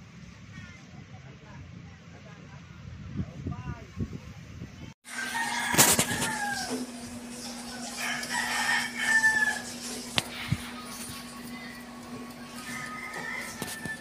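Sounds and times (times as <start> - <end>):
rooster crowing: 5.1 - 10.0, 11.5 - 14.0.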